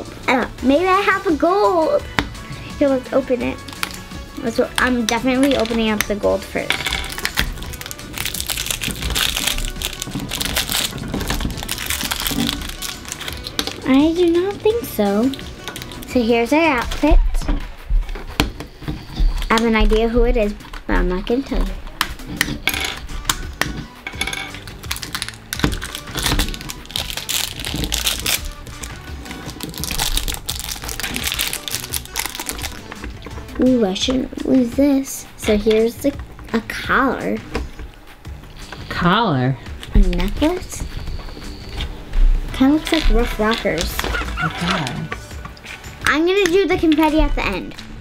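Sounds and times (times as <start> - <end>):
background music: 0.0 - 48.0
plastic wrapping crackling: 3.6 - 16.2, 24.4 - 33.3, 39.7 - 47.3.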